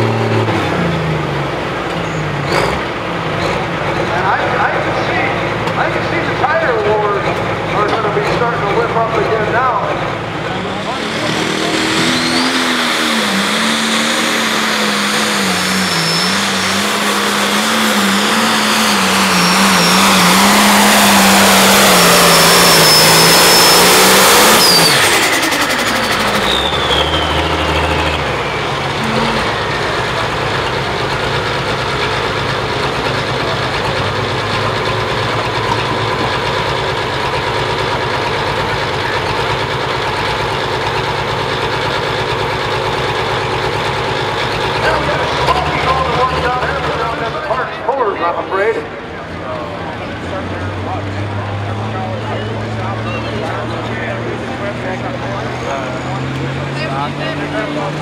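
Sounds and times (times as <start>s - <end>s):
engine idling: 0.0s - 22.9s, 24.6s - 58.0s
diesel tractor engine at full throttle: 0.0s - 58.0s
turbo whistle: 11.2s - 13.2s, 14.7s - 17.2s, 18.6s - 21.2s, 21.9s - 25.6s, 26.2s - 27.7s.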